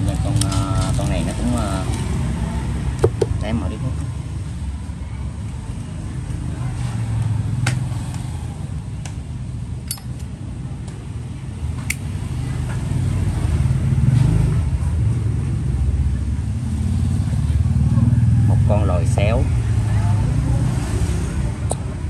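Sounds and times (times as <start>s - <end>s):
road traffic rumble: 0.0s - 22.0s
sharp clicks: 9.9s - 10.3s.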